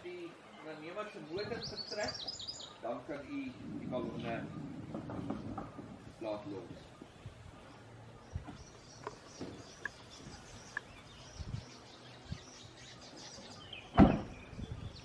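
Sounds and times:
birds chirping: 0.0 - 15.0
tailgate slamming shut: 13.9 - 14.6.

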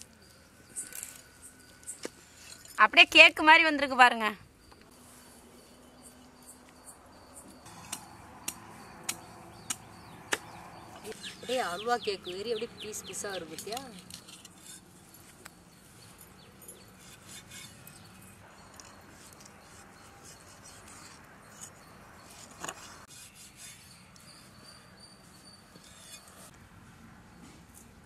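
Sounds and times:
knife scraping: 13.6 - 15.4, 16.7 - 26.5.

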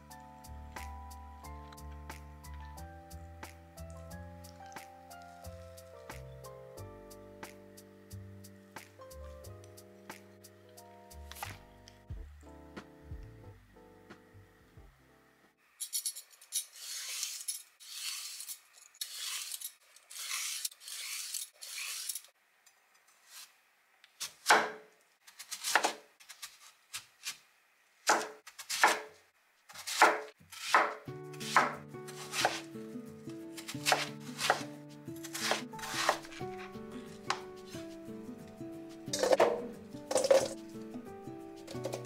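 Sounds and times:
light background music: 0.0 - 15.6, 30.7 - 42.0
peeler scraping radish: 16.4 - 22.3, 29.7 - 32.8, 33.6 - 38.0
knife chopping on wooden board: 24.4 - 24.8, 25.6 - 26.0, 28.1 - 29.1, 29.8 - 32.7, 33.6 - 36.6.

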